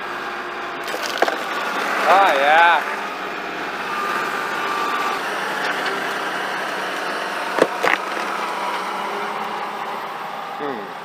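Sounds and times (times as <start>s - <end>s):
tractor engine running: 0.0s - 11.0s.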